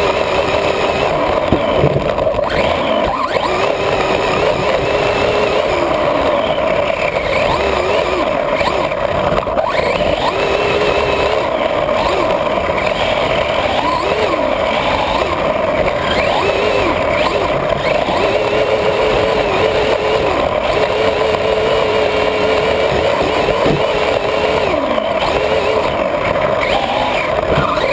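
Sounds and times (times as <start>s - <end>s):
toy car motor whining: 0.0s - 27.9s.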